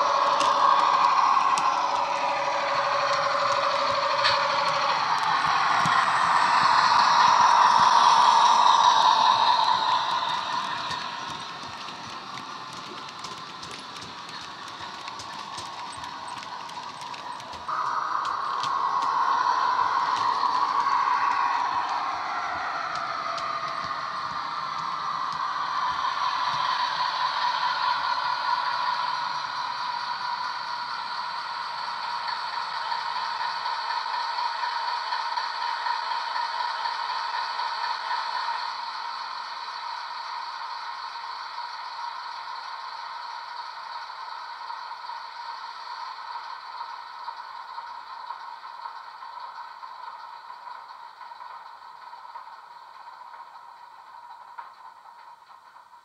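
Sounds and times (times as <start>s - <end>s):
low rumble: 0.0s - 13.5s, 14.8s - 30.2s
diesel engine sound through small speaker: 0.0s - 56.0s.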